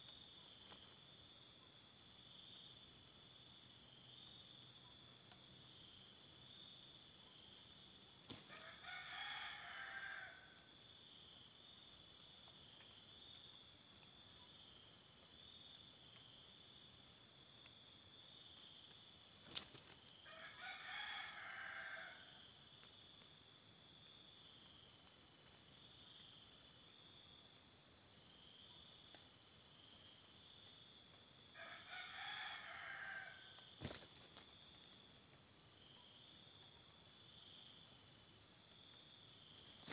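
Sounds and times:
high insect drone: 0.0s - 39.9s
rooster crowing: 8.5s - 10.5s, 20.2s - 22.4s, 31.6s - 33.6s.

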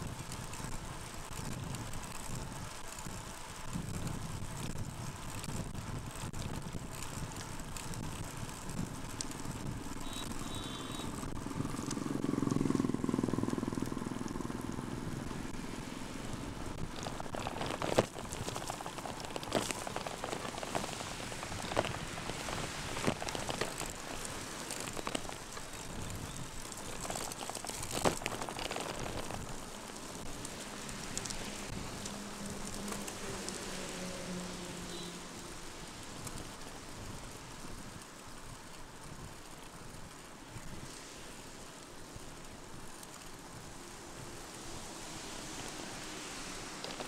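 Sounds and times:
bike tyres on wet asphalt: 0.0s - 47.0s
rain hissing: 0.0s - 47.0s.

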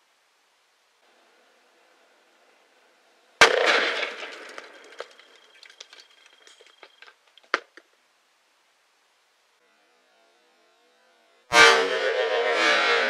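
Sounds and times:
crackle: 0.9s - 8.2s
firecracker bang: 3.4s - 6.2s
clicks and rattles: 3.6s - 8.0s.

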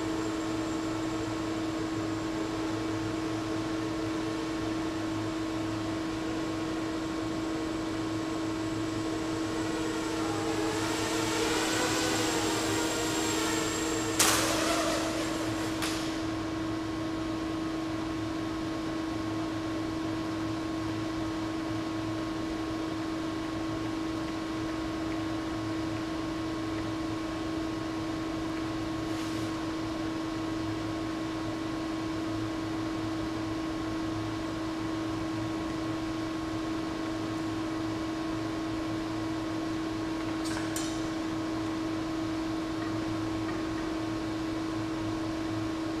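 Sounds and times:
steady mid-pitched hum: 0.0s - 46.0s.

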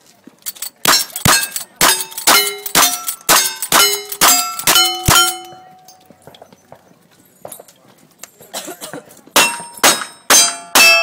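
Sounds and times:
steel targets clanging: 0.4s - 6.4s, 9.4s - 11.0s.

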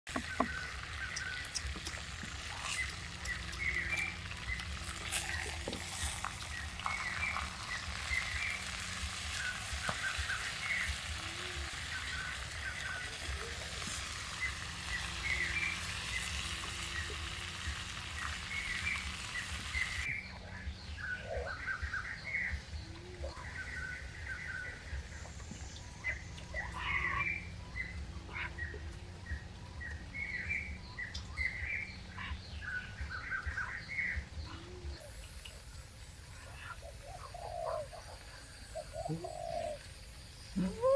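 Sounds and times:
small birds chirping: 0.1s - 40.9s.

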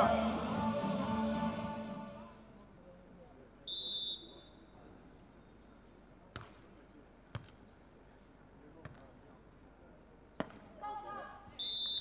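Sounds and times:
referee's whistle blast: 3.7s - 4.6s, 11.6s - 12.0s.

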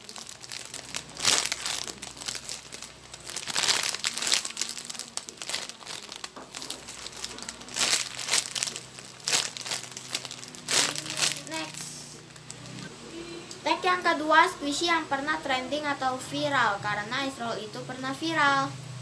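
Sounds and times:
plastic bag crinkling: 0.0s - 12.9s.

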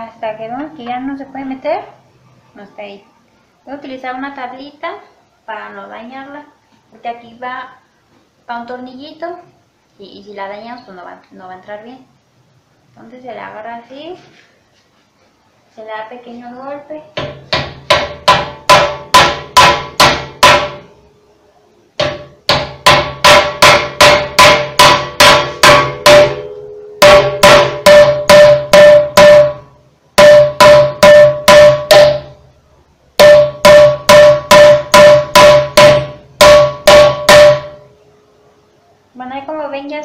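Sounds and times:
hammer blows on wooden block: 17.2s - 20.9s, 22.0s - 32.4s, 33.2s - 37.9s.

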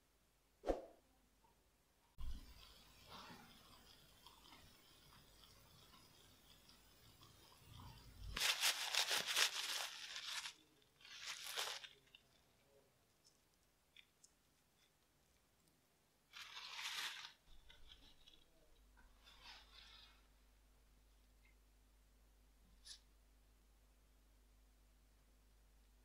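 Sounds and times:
scratchy crackly rustling: 2.2s - 20.4s.

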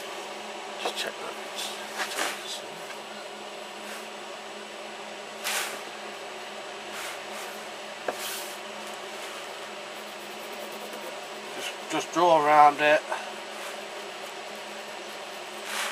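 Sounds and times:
faint steady hum: 0.0s - 15.9s
pencil scratching on paper: 9.9s - 12.3s, 13.6s - 15.9s.

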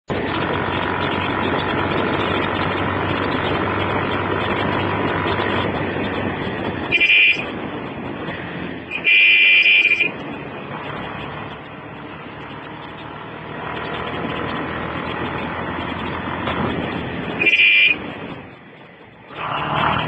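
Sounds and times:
moving vehicle road noise: 0.0s - 20.0s
vehicle horn: 6.9s - 7.5s, 8.9s - 10.2s, 17.4s - 18.1s.

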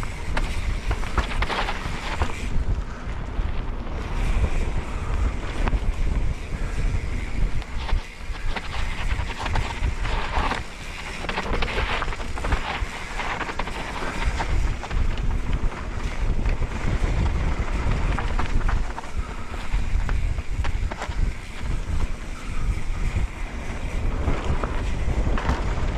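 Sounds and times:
bike knocks and rattles: 0.0s - 25.9s
tyres on loose dirt: 0.0s - 25.9s
wind buffeting microphone: 0.0s - 25.9s.

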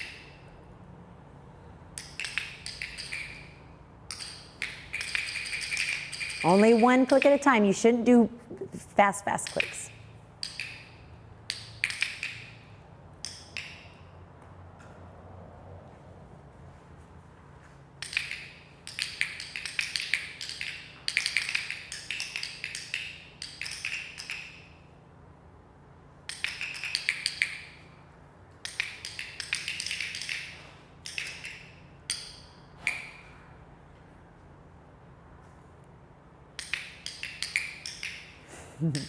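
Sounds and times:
training clickers clicking: 2.0s - 7.8s, 9.3s - 14.0s, 18.0s - 24.7s, 26.2s - 27.8s, 28.5s - 33.2s, 36.6s - 39.0s.

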